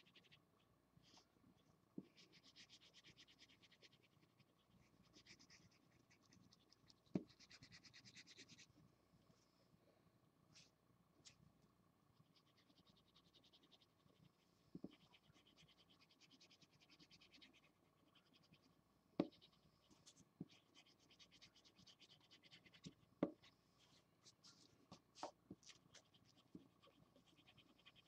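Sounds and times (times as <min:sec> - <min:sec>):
marker scratching on paper: 0:02.0 - 0:08.7, 0:12.3 - 0:13.8, 0:14.7 - 0:18.6, 0:19.2 - 0:28.0.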